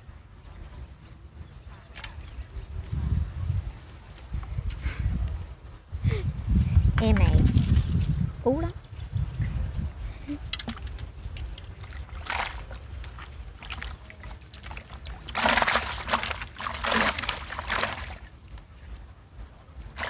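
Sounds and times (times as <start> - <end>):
water splashing: 10.5 - 18.4.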